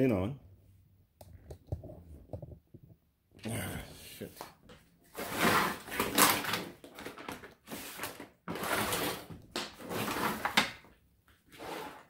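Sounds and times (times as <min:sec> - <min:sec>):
handling rustling and knocking: 0:01.2 - 0:03.1.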